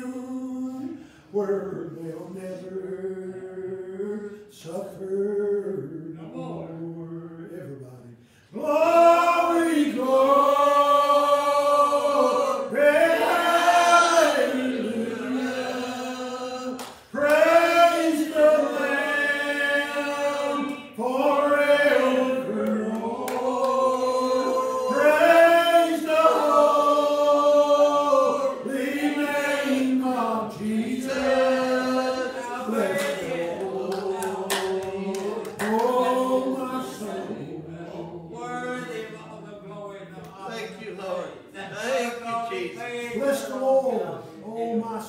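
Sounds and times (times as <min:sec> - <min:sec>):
man singing a hymn: 0:00.0 - 0:15.0, 0:16.0 - 0:37.1.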